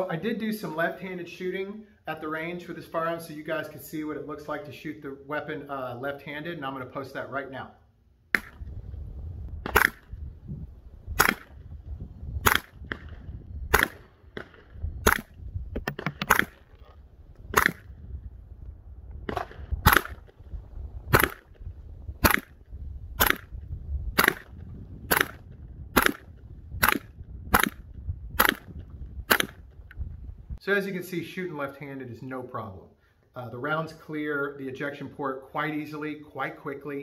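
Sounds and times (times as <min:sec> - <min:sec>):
suppressed gunshots: 0:09.6 - 0:10.2, 0:11.1 - 0:11.6, 0:12.4 - 0:16.8, 0:17.5 - 0:17.9, 0:19.2 - 0:20.4, 0:21.1 - 0:21.6, 0:22.2 - 0:22.6, 0:23.2 - 0:23.6, 0:24.2 - 0:29.6.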